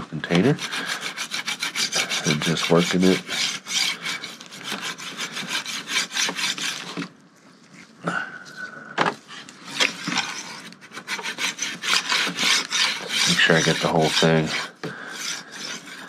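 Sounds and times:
metal carriage rasping along rail: 11.1 - 16.0.

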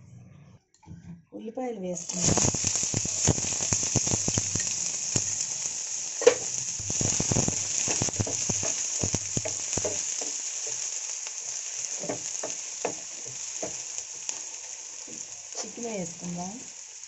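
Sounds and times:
onions sizzling in hot oil: 2.0 - 17.0
wooden spatula scraping a pan: 6.2 - 15.8.

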